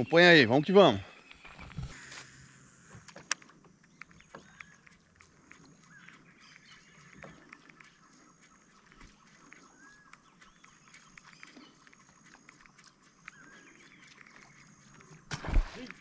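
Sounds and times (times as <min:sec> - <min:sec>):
faint clicks: 0:02.9 - 0:15.2
whistled bird calls: 0:12.8 - 0:15.0.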